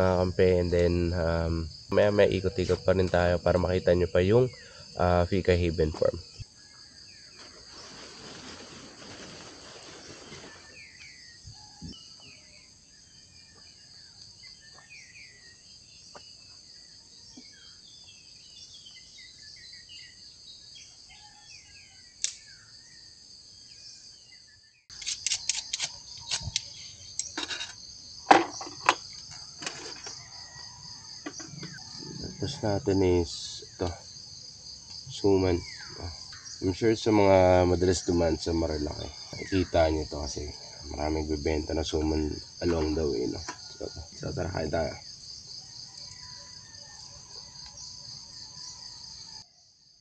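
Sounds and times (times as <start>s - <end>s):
birds chirping: 0.0s - 8.1s, 28.2s - 45.2s
insects chorus: 0.0s - 50.0s.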